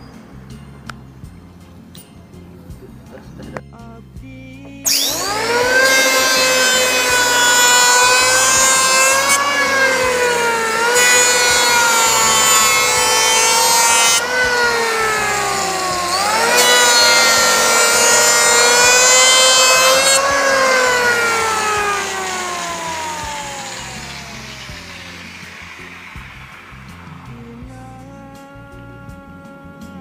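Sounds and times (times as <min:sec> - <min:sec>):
electric planer whining: 0:04.8 - 0:27.6
hiss of wood cutting: 0:04.8 - 0:27.6.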